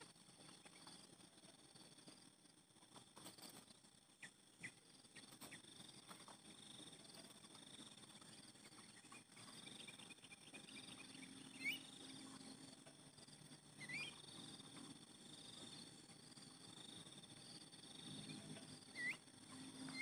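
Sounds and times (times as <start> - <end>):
insect trilling: 7.4 - 12.8, 13.5 - 20.0
short bird chirps: 13.8 - 14.2.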